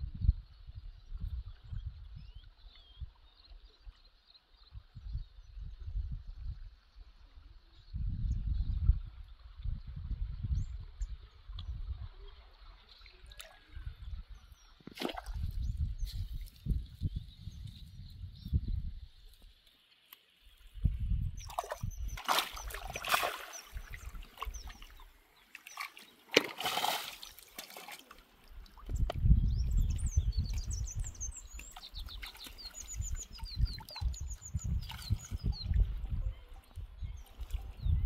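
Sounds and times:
small birds chirping: 0:10.5 - 0:26.5, 0:27.1 - 0:38.0
water splashing: 0:14.8 - 0:15.6, 0:21.4 - 0:29.1, 0:31.4 - 0:36.0.

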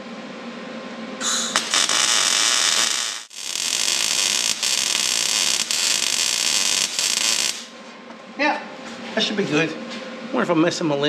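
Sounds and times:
welding arc hissing: 0:01.2 - 0:07.8.

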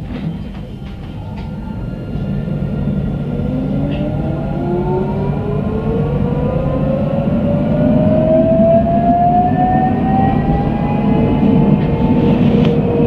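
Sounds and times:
tram motors whining: 0:00.0 - 0:13.0.

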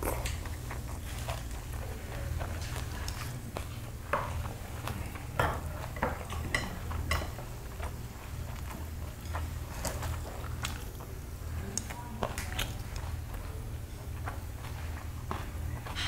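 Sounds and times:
steady low hum: 0:00.0 - 0:16.0
chopsticks clinking on dishes: 0:05.3 - 0:07.5.

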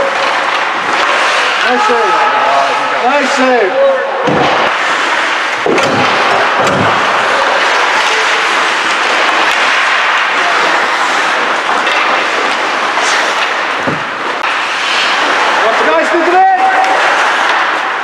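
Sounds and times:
skates scraping ice: 0:00.0 - 0:03.6, 0:04.5 - 0:18.0
ice hockey rink rushing noise: 0:00.0 - 0:18.0
low thuds: 0:04.2 - 0:04.9, 0:05.6 - 0:07.4, 0:13.7 - 0:14.4.

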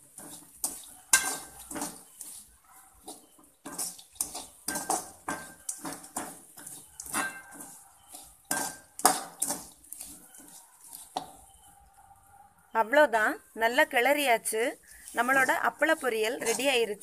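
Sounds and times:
spatula scraping metal pan: 0:00.0 - 0:11.8, 0:14.8 - 0:17.0
crisp pieces being stirred: 0:00.0 - 0:12.3, 0:12.9 - 0:17.0.

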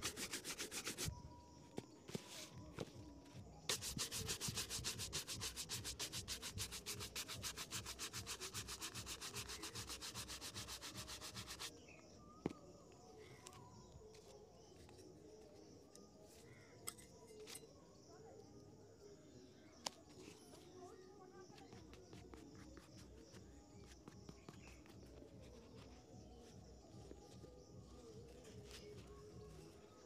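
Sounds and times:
brush scrubbing leather shoe: 0:00.0 - 0:01.1, 0:03.7 - 0:11.7.

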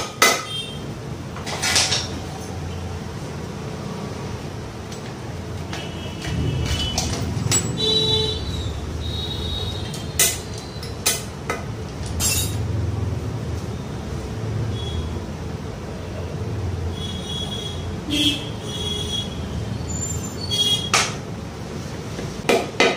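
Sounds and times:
metallic clinks of engine parts: 0:06.3 - 0:07.8, 0:12.0 - 0:12.6.

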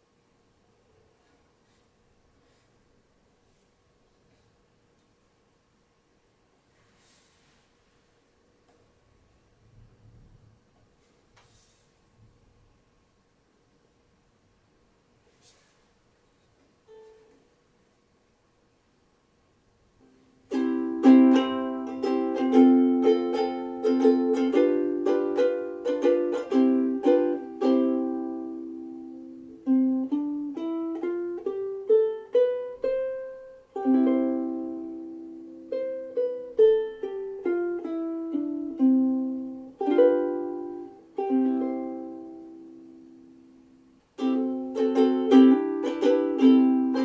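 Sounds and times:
ukulele picked melody: 0:16.8 - 0:17.5, 0:20.0 - 0:47.0
ukulele strummed chords: 0:20.3 - 0:47.0.

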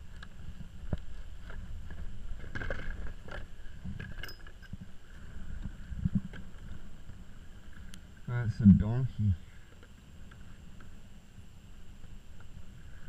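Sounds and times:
gear clicks and knocks: 0:00.0 - 0:04.9.

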